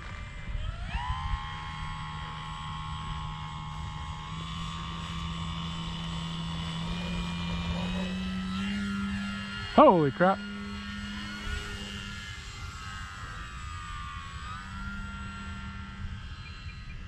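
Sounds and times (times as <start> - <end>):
wind rumble on microphone: 0.0 - 9.8
electric motor and propeller whining: 0.0 - 17.0.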